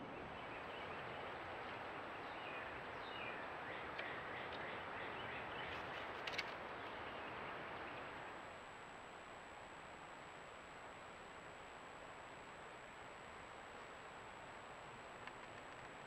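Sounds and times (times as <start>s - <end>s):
faint bird calls: 0.0s - 8.1s.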